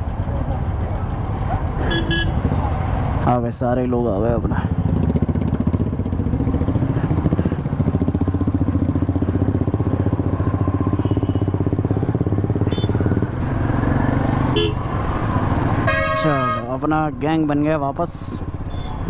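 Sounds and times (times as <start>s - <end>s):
motorcycle engine idling: 4.8s - 13.2s.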